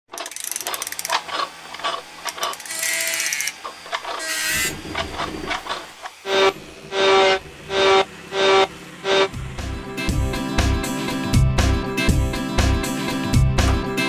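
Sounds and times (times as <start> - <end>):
rapid mechanical clicking and ratcheting: 0.1 - 6.2
short whirring runs: 0.2 - 9.6
loud pitched tone: 6.2 - 9.7.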